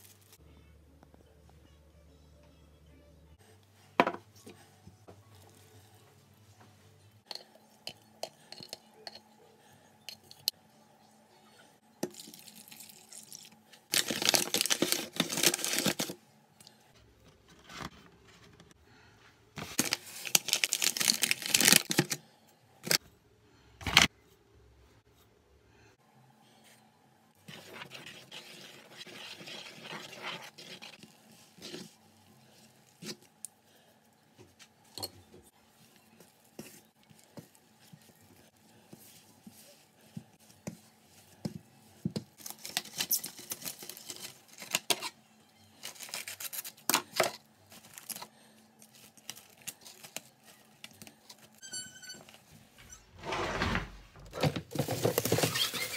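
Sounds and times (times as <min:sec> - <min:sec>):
paper bag crinkling: 0:13.9 - 0:16.2, 0:19.6 - 0:22.2.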